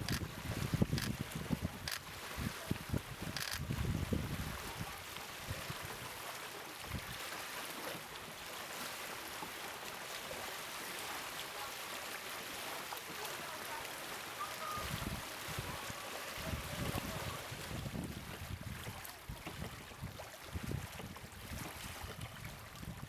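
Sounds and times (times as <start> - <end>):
wind gusts on microphone: 0.0 - 6.1, 14.4 - 23.0.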